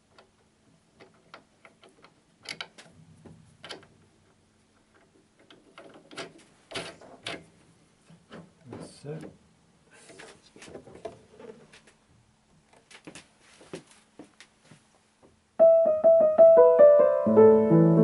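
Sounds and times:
piano parts clicking and tapping: 0.0 - 7.5.

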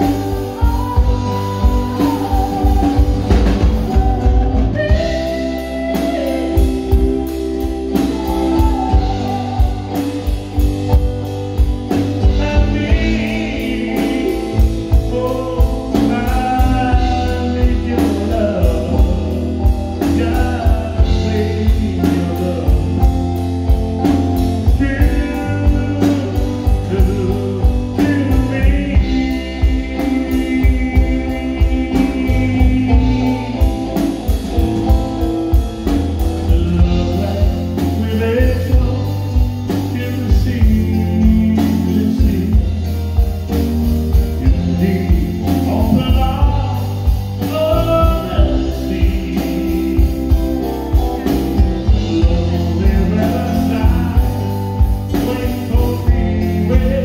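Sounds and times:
guitar: 0.0 - 57.0
man singing into a microphone: 0.0 - 57.0
steady drum beat: 0.0 - 57.0.

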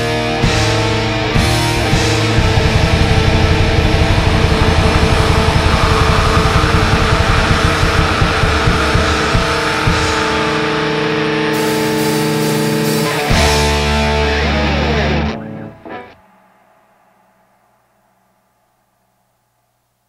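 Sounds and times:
distorted guitars: 0.0 - 19.6
blast-beat drumming: 0.4 - 14.3.

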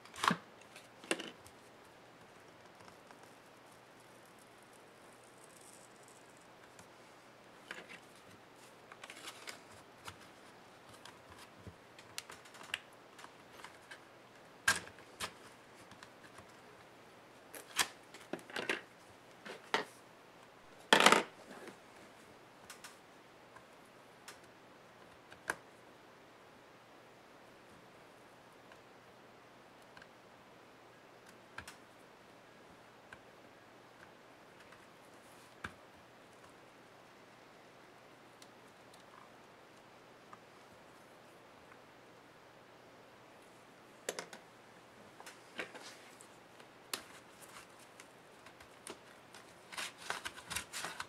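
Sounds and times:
plastic clicking and crackling: 10.8 - 14.0.

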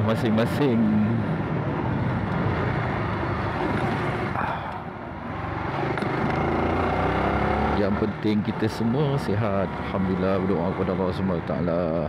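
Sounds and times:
wind rushing over microphone: 0.7 - 6.3.

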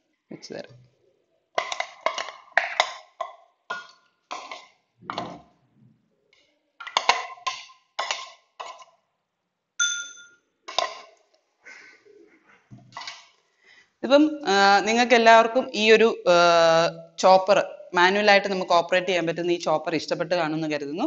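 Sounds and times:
metal spoon clinking and tapping: 1.6 - 4.7, 6.8 - 8.9, 9.8 - 11.1.

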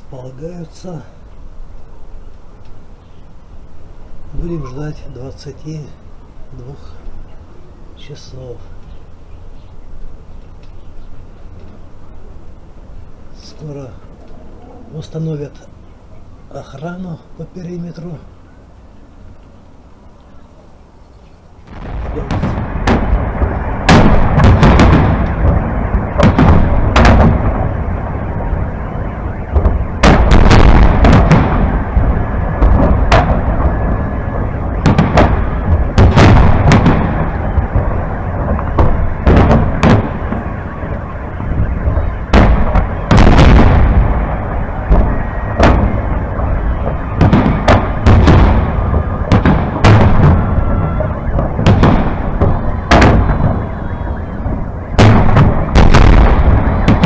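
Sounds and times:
continuous low rumble: 0.0 - 57.0
fireworks bangs: 21.6 - 57.0.

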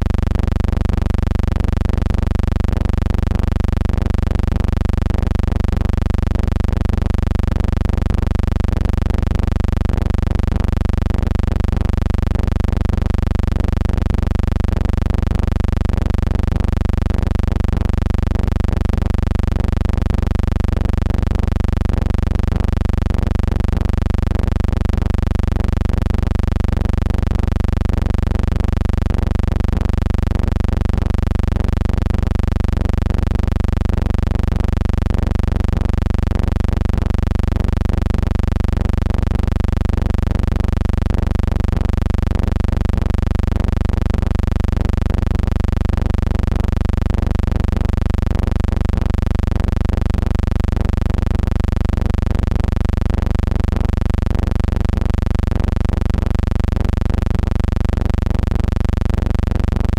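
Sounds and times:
steady low hum: 0.0 - 34.5.

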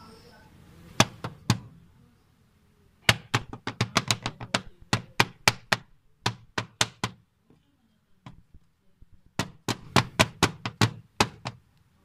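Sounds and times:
air filter being tapped: 3.0 - 7.2.

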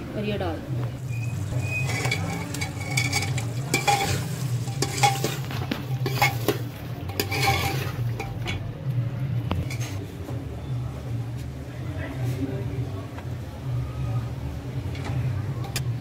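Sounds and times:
food sizzling: 0.8 - 8.5
spoon scraping a pot: 1.4 - 8.6, 9.5 - 10.1.

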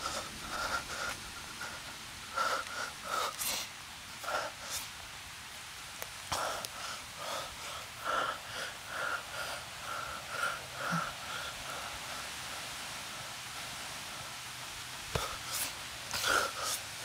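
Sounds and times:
man breathing hard wheezing: 0.0 - 4.9, 6.3 - 14.4, 15.1 - 17.0.

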